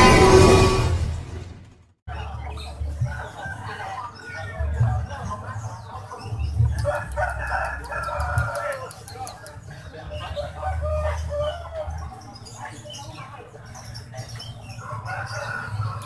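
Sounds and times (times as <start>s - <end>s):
rooster crowing: 6.8s - 8.9s, 14.8s - 16.0s.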